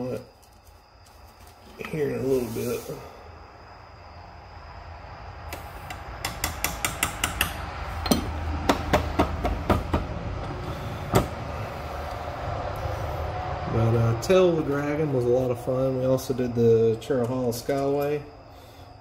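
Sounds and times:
tools knocking on wooden bench: 6.2 - 10.1.

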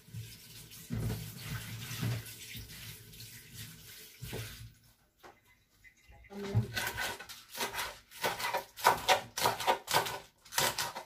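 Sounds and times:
tap water running into sink: 0.0 - 5.4.

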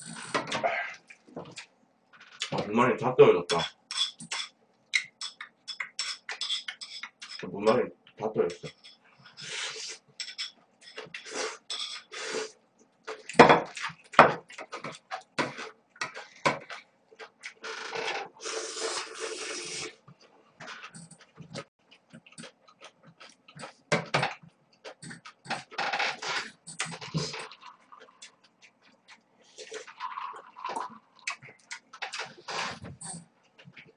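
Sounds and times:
utensils clicking on dishes: 3.5 - 7.5
slurping noodles: 18.4 - 20.0
person chewing: 21.0 - 25.7, 26.3 - 33.9.

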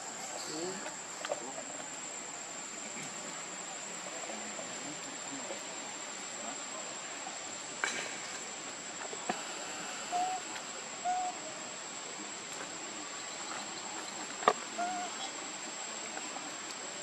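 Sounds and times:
steady high-pitched whine: 0.0 - 17.0
hooting animal calls: 9.3 - 11.6, 14.8 - 15.4.

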